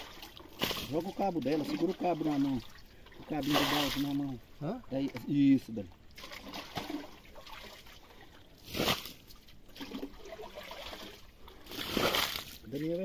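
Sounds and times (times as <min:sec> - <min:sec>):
bucket splashing into water: 0:00.0 - 0:04.2, 0:06.1 - 0:08.0, 0:08.6 - 0:12.6
muddy water sloshing: 0:00.0 - 0:13.0.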